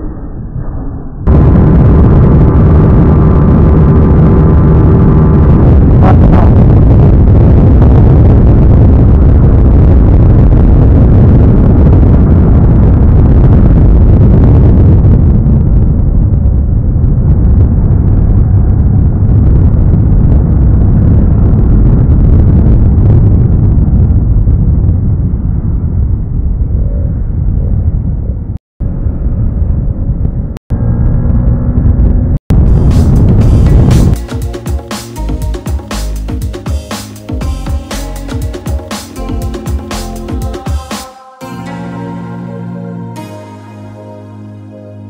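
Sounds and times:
heavy wind noise: 0.0s - 35.9s.

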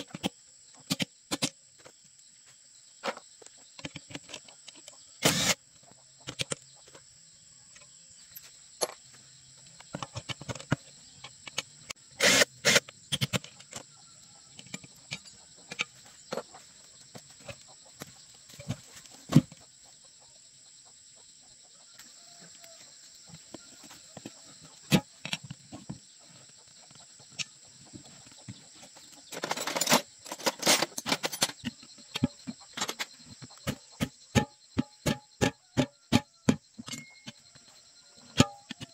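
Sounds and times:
metal tools clanking on wheel rim: 14.5s - 16.6s, 29.3s - 33.8s, 34.4s - 37.6s.

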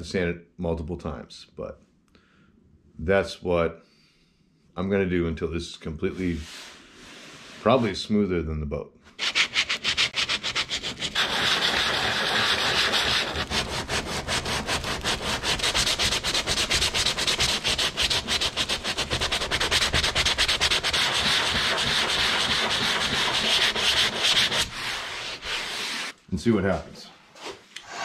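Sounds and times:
sandpaper scraping plastic: 9.2s - 26.2s.

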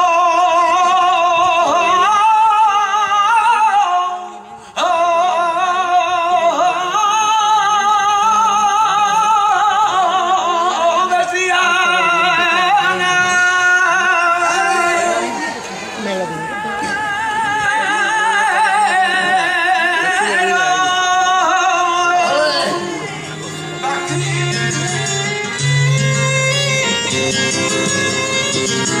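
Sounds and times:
man singing wavering phrases: 16.5s - 23.0s.

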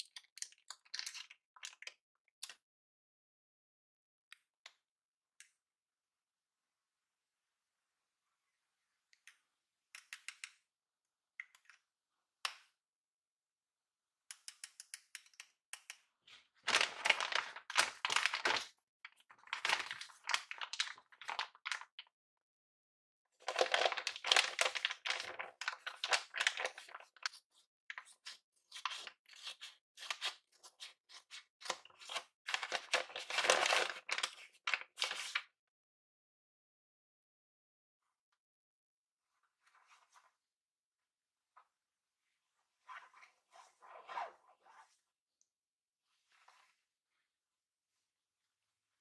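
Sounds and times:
paper packaging crinkling: 16.7s - 22.0s, 23.4s - 27.4s, 28.0s - 35.4s.

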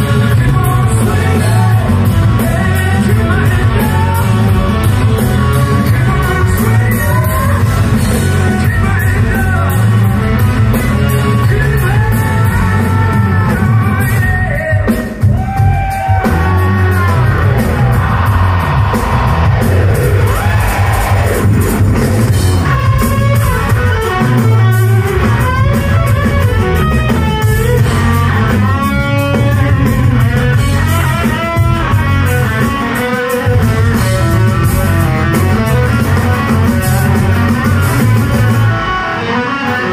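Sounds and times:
vocals: 0.0s - 21.6s
hard rock band playing live: 0.0s - 39.9s
lead guitar bending notes: 16.2s - 39.9s.

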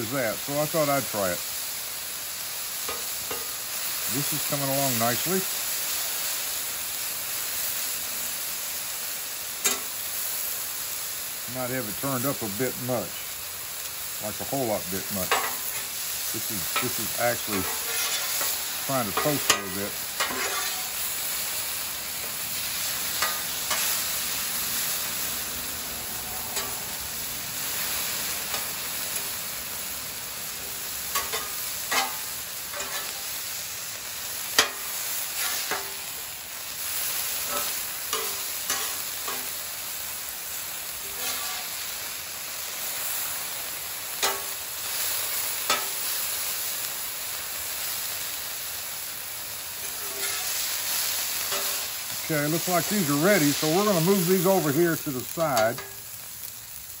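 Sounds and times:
meat sizzling on a griddle: 0.0s - 57.0s
metal spatula clinking and scraping: 15.2s - 15.9s, 16.7s - 21.0s, 23.2s - 24.0s, 26.5s - 26.8s, 31.1s - 33.3s, 34.6s - 36.0s, 37.4s - 39.6s, 41.1s - 41.7s, 44.2s - 44.6s, 45.7s - 46.0s, 49.8s - 50.6s, 51.4s - 51.8s, 55.5s - 56.0s.

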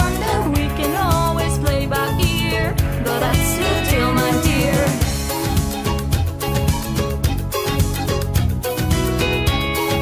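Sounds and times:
pop song with singing: 0.0s - 5.9s.

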